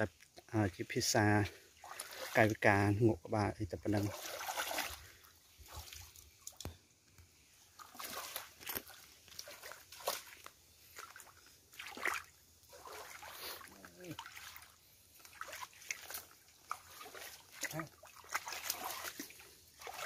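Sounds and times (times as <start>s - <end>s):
hands splashing in stream water: 1.8s - 2.5s, 3.9s - 6.7s, 7.7s - 20.0s
water dripping: 4.0s - 20.0s.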